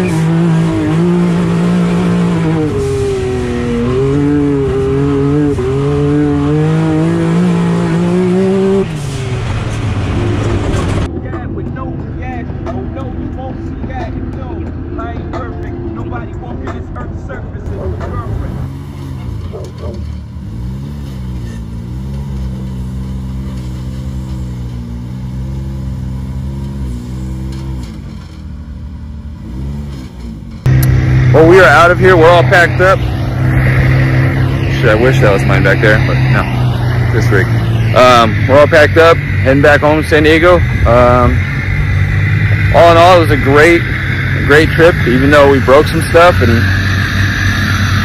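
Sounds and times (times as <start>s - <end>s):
engine running hard: 0.0s - 48.0s.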